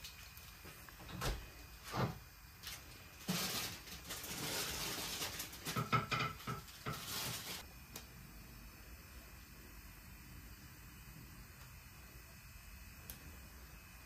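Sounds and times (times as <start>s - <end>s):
plastic wrap crinkling: 1.7s - 7.7s.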